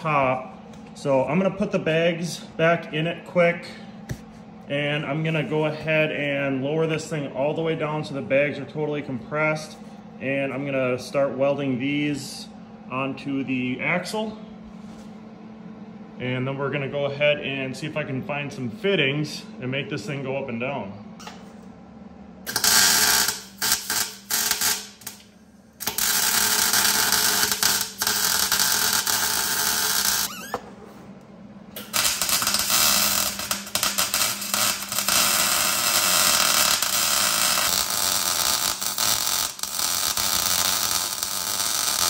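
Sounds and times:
mig welder arcing: 22.4s - 42.0s.

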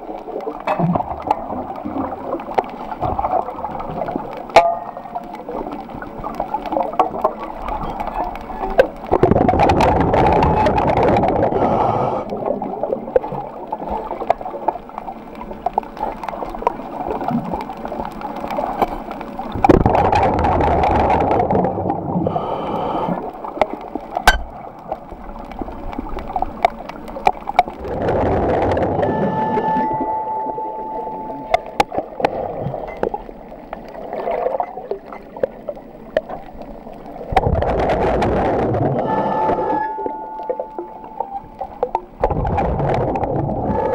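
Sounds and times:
underwater gurgling: 0.0s - 43.9s
water rushing: 0.0s - 43.9s.

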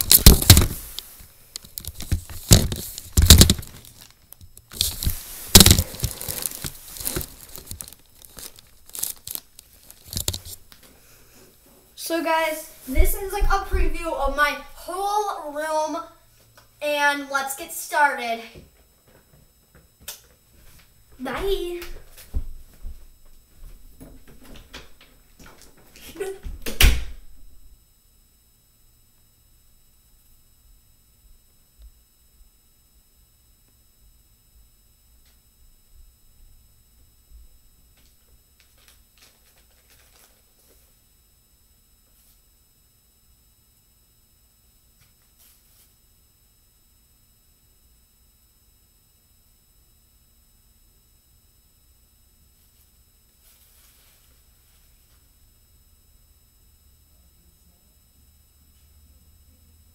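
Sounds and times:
footsteps: 12.6s - 14.7s
door banging shut: 26.6s - 27.2s.

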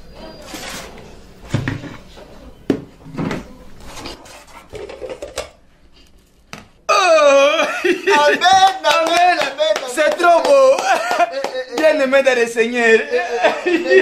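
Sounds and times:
plastic containers clattering: 0.4s - 2.1s, 2.7s - 5.6s.

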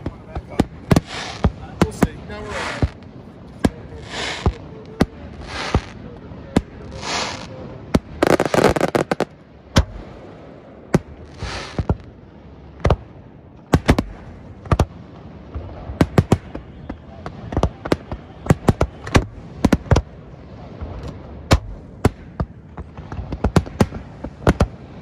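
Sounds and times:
firework bangs: 0.0s - 25.0s
firework crackling: 0.0s - 25.0s
firework hissing rushes: 0.4s - 3.1s, 3.8s - 6.0s, 6.8s - 7.6s, 8.2s - 9.3s, 11.2s - 12.0s.

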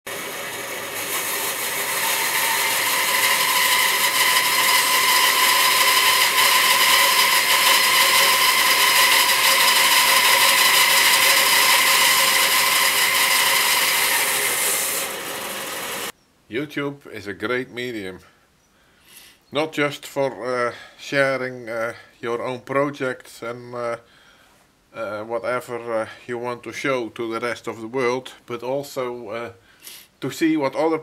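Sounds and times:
bandsaw cutting log: 0.1s - 16.1s.

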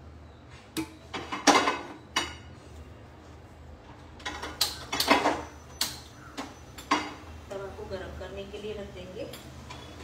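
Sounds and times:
kitchen utensils clicking and clattering: 0.8s - 2.5s, 4.2s - 7.3s.

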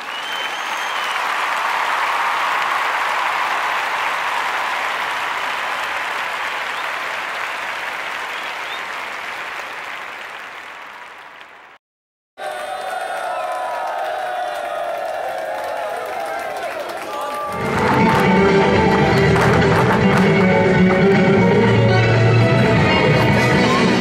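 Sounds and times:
faint whistle: 0.0s - 1.3s, 8.4s - 8.9s
crowd applauding: 0.0s - 11.8s, 12.4s - 24.0s.

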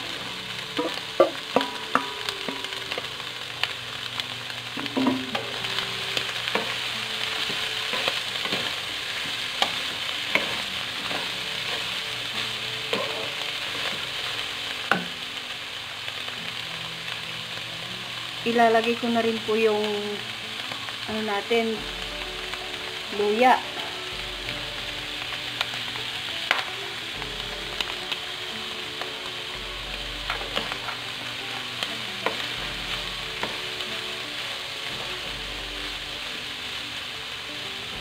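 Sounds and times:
meat sizzling in hot oil: 0.0s - 38.0s
wooden spatula knocking on pan: 0.8s - 2.7s, 14.9s - 15.1s.

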